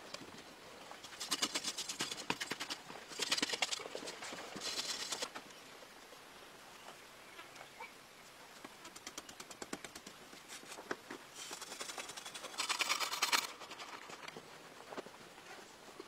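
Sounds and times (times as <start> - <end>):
hand tool scraping dry earth: 1.0 - 5.3, 10.5 - 14.3.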